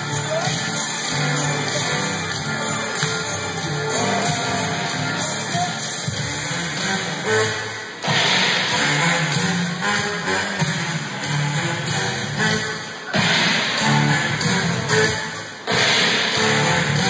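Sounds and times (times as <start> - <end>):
music over loudspeakers: 0.0 - 17.0.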